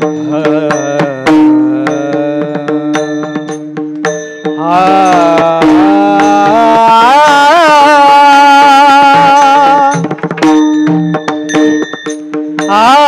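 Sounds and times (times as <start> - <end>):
man singing long note: 0.0 - 3.5, 4.6 - 10.0, 12.7 - 13.0
drum strokes: 0.0 - 13.0
hand cymbals struck: 0.0 - 13.0.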